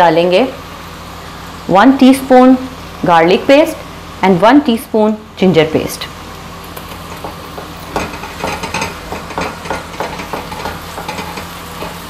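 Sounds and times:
onions sizzling in hot oil: 0:06.1 - 0:12.0
spatula scraping pan: 0:07.0 - 0:12.0.

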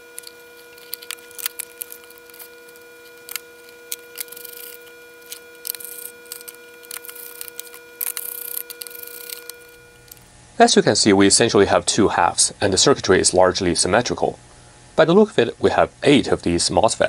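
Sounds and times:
pick clicking and scraping plastic: 0:00.0 - 0:10.2
steady background hum: 0:00.0 - 0:17.0.

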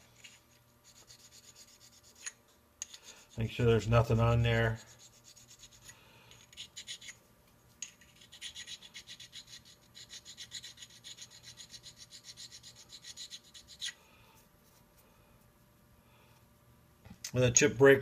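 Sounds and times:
stone rasping on tool bit: 0:04.7 - 0:07.2, 0:07.8 - 0:14.0.

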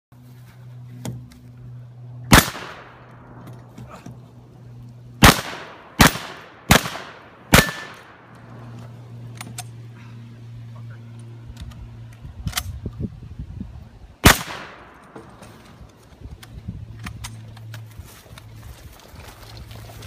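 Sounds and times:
gunshots with echo: 0:02.3 - 0:03.1, 0:05.2 - 0:08.3, 0:14.2 - 0:15.1.

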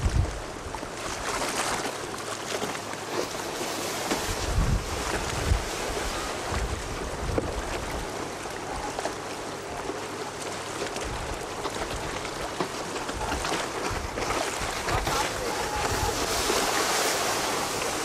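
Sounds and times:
wind buffeting microphone: 0:00.0 - 0:00.7, 0:04.2 - 0:09.0, 0:11.0 - 0:18.0
rush of wind: 0:00.0 - 0:01.0, 0:03.6 - 0:08.9, 0:13.0 - 0:18.0
choppy surf: 0:02.0 - 0:18.0.

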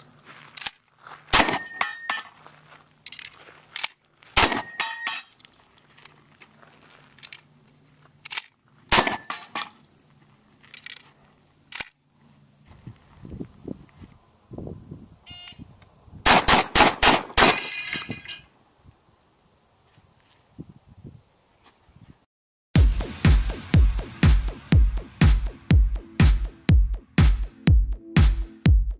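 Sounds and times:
shotgun blasts: 0:01.3 - 0:01.8, 0:04.4 - 0:04.8, 0:08.9 - 0:09.4, 0:16.2 - 0:17.6.

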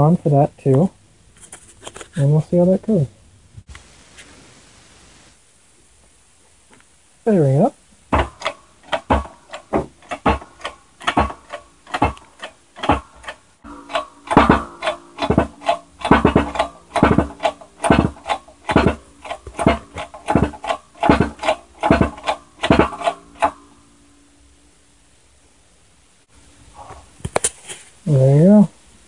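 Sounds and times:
held chord tones: 0:08.1 - 0:25.8.

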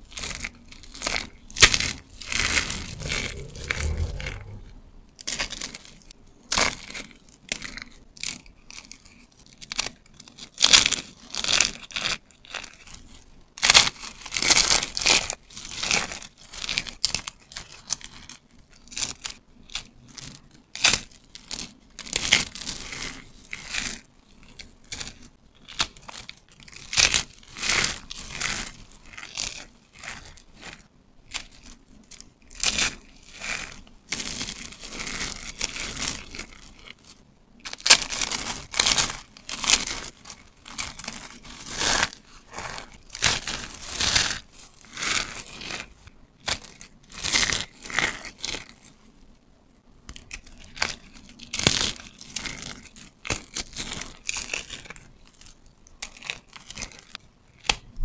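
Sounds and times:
dry soap crunching and crackling: 0:00.0 - 0:04.6, 0:05.4 - 0:49.3, 0:50.0 - 0:58.0.

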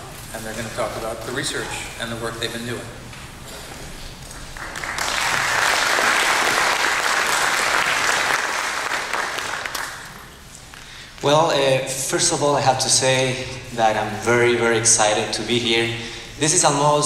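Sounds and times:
audience applauding: 0:04.3 - 0:10.4.

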